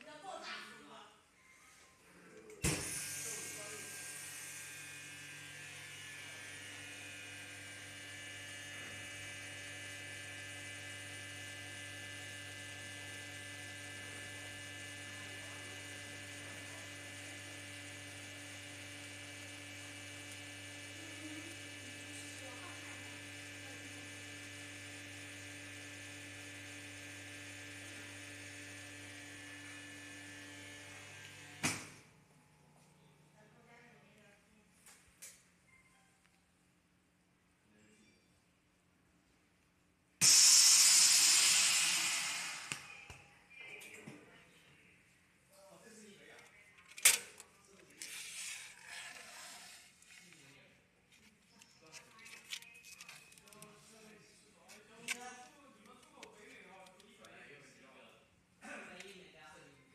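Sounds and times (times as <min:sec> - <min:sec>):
vacuum pump humming: 0:02.7 - 0:32.6
chamber venting burst: 0:40.2 - 0:42.9.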